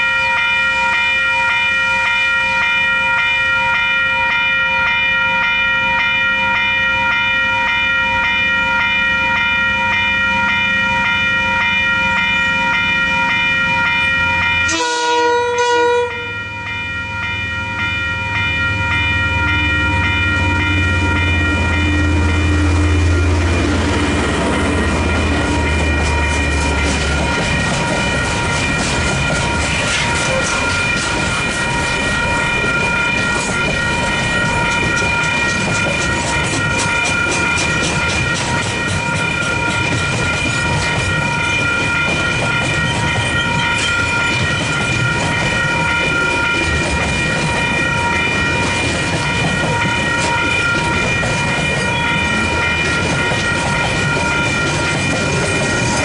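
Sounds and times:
electronic crossing bells ringing: 0:00.0 - 0:56.0
locomotive horn blast: 0:14.7 - 0:16.4
train wagons clickety-clack: 0:17.6 - 0:56.0
locomotive engine rumble: 0:18.7 - 0:56.0.

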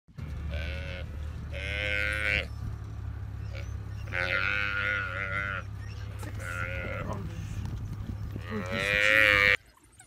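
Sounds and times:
steady low hum: 0:00.1 - 0:09.6
buffalo calf bawling: 0:00.5 - 0:02.6, 0:03.4 - 0:07.6, 0:08.3 - 0:09.6.

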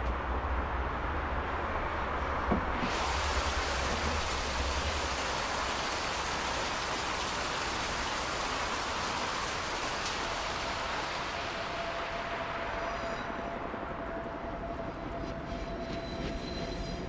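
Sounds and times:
rain hissing: 0:02.6 - 0:13.7.

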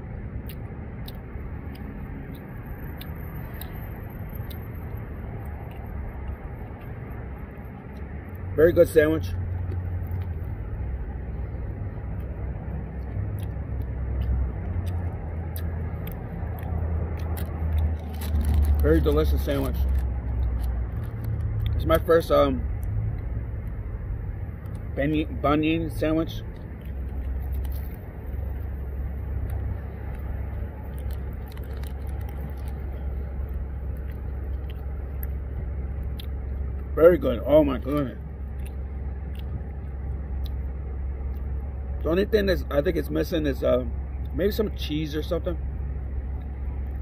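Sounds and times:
low outdoor rumble: 0:00.0 - 0:47.0
person chewing food: 0:12.0 - 0:18.8, 0:26.5 - 0:36.9, 0:38.3 - 0:40.7.

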